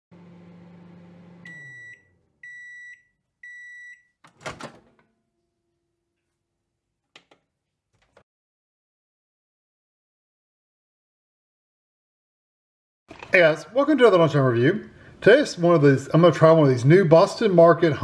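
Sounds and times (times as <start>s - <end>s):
microwave oven humming: 0.1s - 2.7s
microwave timer beeps: 1.2s - 4.2s.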